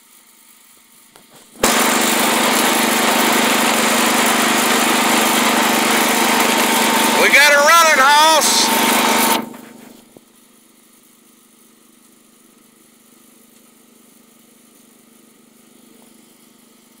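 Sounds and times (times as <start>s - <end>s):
engine shutting off: 1.6s - 10.0s.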